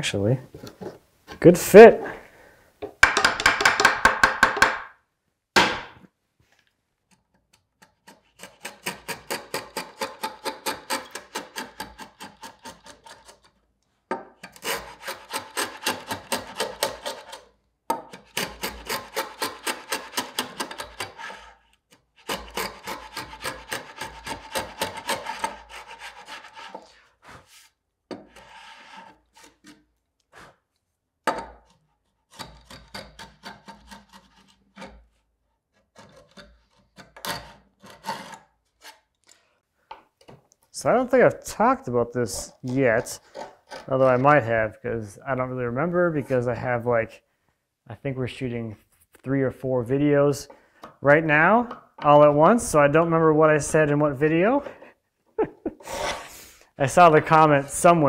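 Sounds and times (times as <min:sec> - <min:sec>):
router plane scraping wood: 0:14.5 - 0:17.4, 0:18.3 - 0:29.8, 0:42.4 - 0:44.4, 0:55.8 - 0:56.4.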